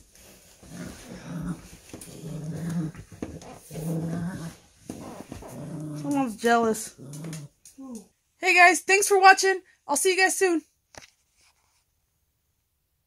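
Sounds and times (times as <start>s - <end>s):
small dog growling: 0.6s - 8.1s.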